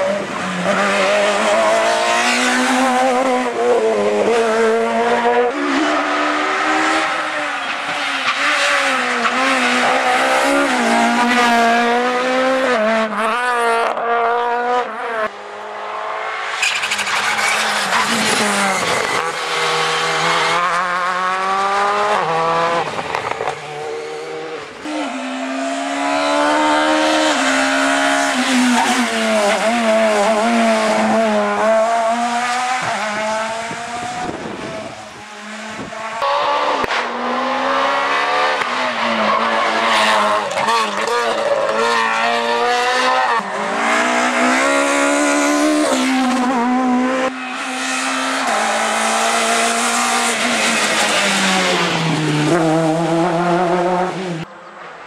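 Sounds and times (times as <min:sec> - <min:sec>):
rally car engines at full throttle: 0:00.0 - 0:55.0.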